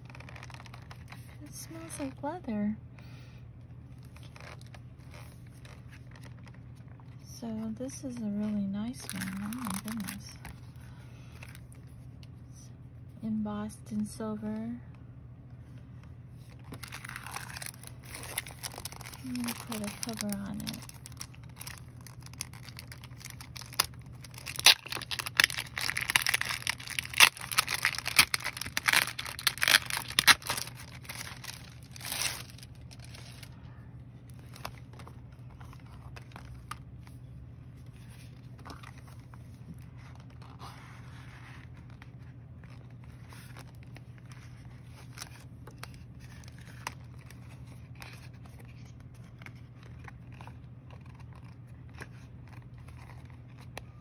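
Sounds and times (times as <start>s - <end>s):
packaging tearing and crinkling: 0.0s - 1.3s, 4.0s - 7.0s, 8.9s - 10.5s, 16.5s - 33.6s, 34.3s - 36.8s, 42.6s - 53.8s
low steady hum: 0.0s - 54.0s.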